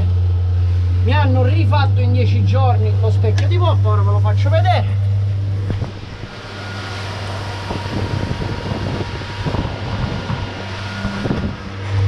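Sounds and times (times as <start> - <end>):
low thumps: 0.0 - 12.0
outboard motor drone: 0.0 - 12.0
wind noise on microphone: 5.0 - 12.0
rushing wind and water: 5.4 - 12.0.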